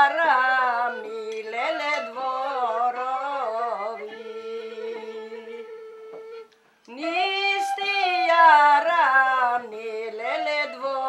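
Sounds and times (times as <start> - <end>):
person singing folk song: 0.0 - 5.7, 6.9 - 11.0
wooden end-blown flute: 0.0 - 8.8.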